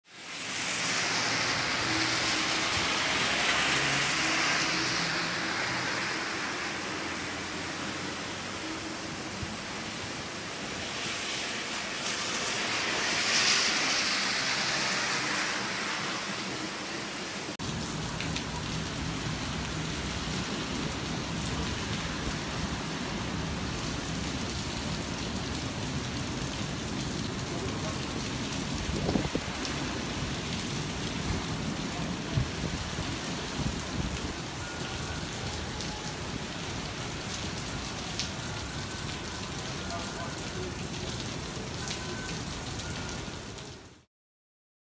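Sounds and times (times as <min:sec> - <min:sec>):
torrential rain: 0:00.0 - 0:44.1
gusting wind: 0:28.0 - 0:34.8.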